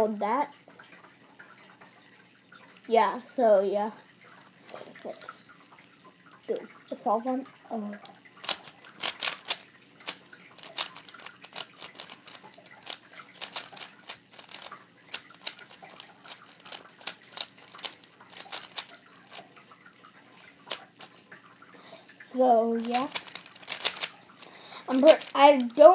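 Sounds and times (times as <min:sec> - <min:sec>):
speed cube layers clicking: 0:08.4 - 0:19.5, 0:20.7 - 0:21.1, 0:22.8 - 0:24.1, 0:24.9 - 0:25.9.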